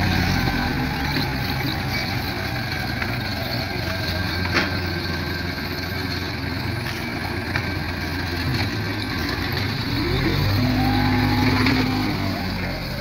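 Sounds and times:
forklift engine running: 0:00.0 - 0:13.0.

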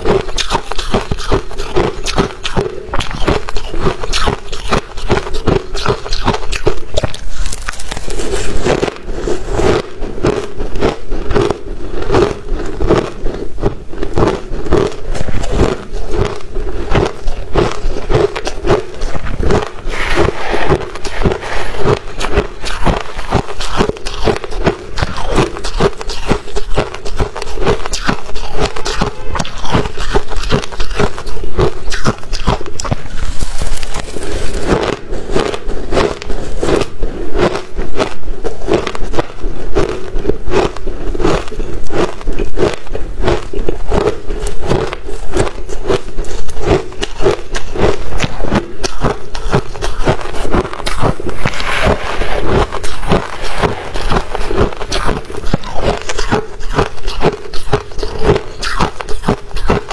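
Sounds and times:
frost being crunched and chewed: 0:00.0 - 0:59.9
metal spoon scraping frost: 0:16.9 - 0:36.8, 0:47.0 - 0:59.9.

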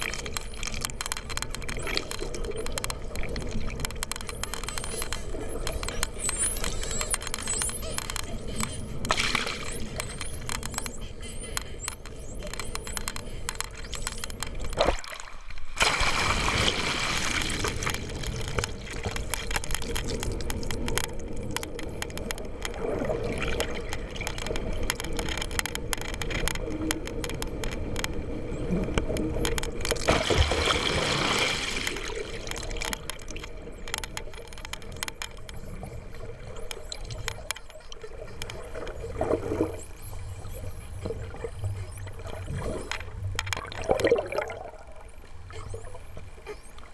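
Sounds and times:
crackling clicks: 0:00.0 - 0:46.9
water rushing and gurgling: 0:15.0 - 0:20.3, 0:29.9 - 0:32.9, 0:42.1 - 0:46.4.

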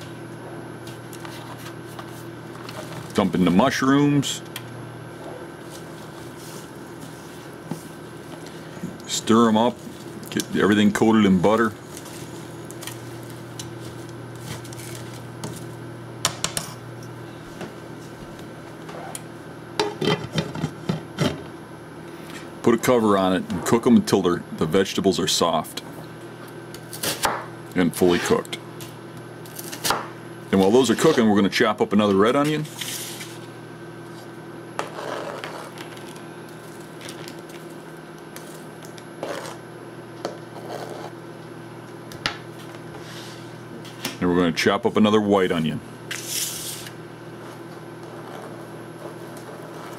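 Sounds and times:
steady low hum: 0:00.0 - 0:49.9
knife scraping cutting board: 0:34.8 - 0:35.8, 0:39.2 - 0:39.6, 0:40.5 - 0:41.2, 0:47.5 - 0:49.9.

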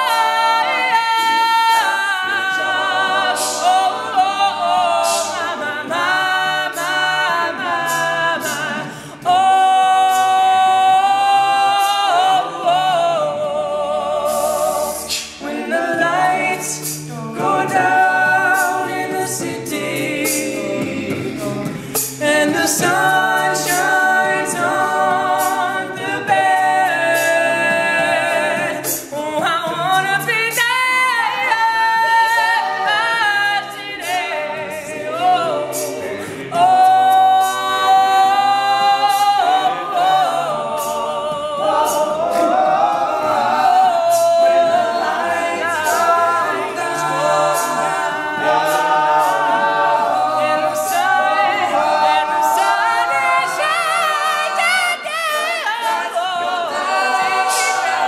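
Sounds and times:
men singing a cappella: 0:00.0 - 0:58.0
steady beat of sharp clicks: 0:00.9 - 0:58.0.

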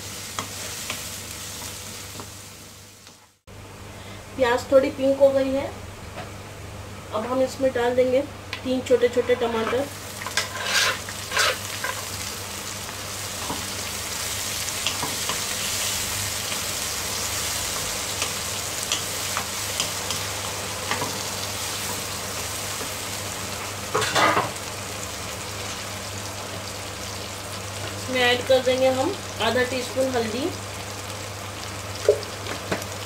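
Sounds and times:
vegetables sizzling in hot oil: 0:00.0 - 0:03.4, 0:08.8 - 0:33.0
spatula scraping a pan: 0:09.6 - 0:12.1.

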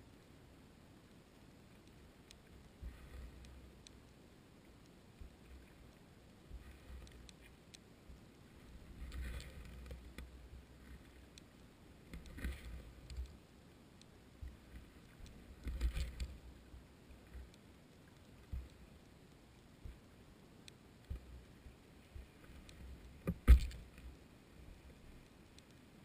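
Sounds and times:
light clicks: 0:01.1 - 0:08.2, 0:09.0 - 0:13.4.

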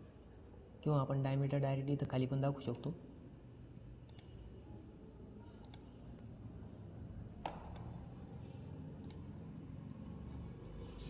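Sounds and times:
faint low room hum: 0:00.0 - 0:11.0
computer mouse clicking: 0:04.1 - 0:04.4, 0:05.6 - 0:05.9, 0:09.0 - 0:09.3.

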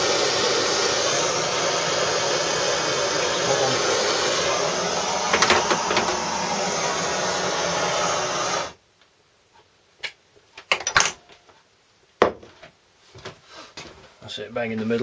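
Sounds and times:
rushing hiss: 0:00.0 - 0:08.8.

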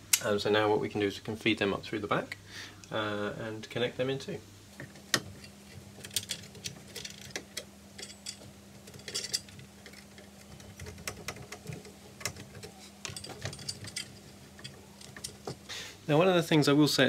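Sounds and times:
cables clicking and rustling: 0:04.7 - 0:15.7.

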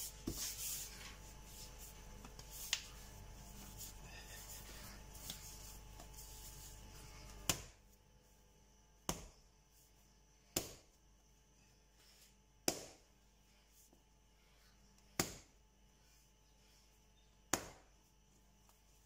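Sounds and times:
dough slapping on stone: 0:07.3 - 0:07.8, 0:09.0 - 0:09.4, 0:10.6 - 0:11.0, 0:12.6 - 0:13.1, 0:15.1 - 0:15.6, 0:17.5 - 0:18.0.

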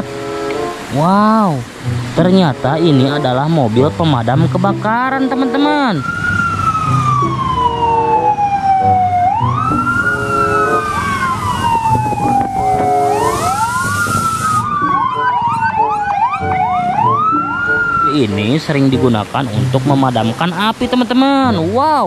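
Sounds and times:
fire engine siren wailing: 0:00.0 - 0:19.7
fast short siren sweeps: 0:05.6 - 0:18.3.

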